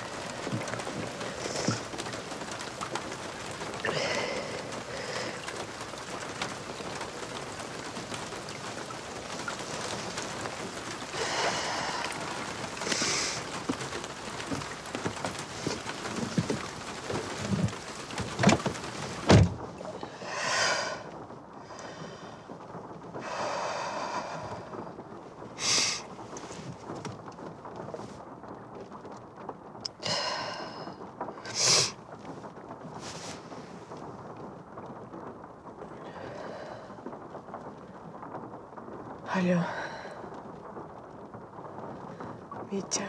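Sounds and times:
outdoor hiss: 0.0 - 27.2, 29.8 - 34.2
car door shutting: 18.3 - 19.6.

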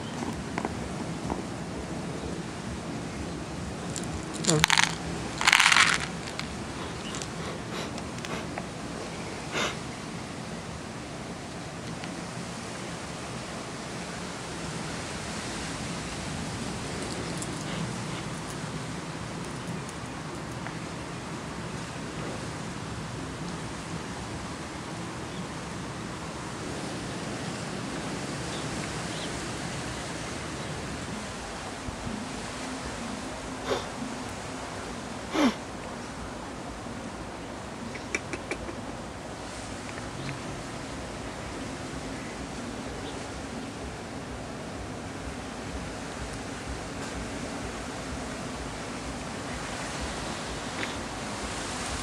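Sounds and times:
steady background noise: 0.0 - 52.0
seeds rattling into plastic lid: 3.9 - 7.4.

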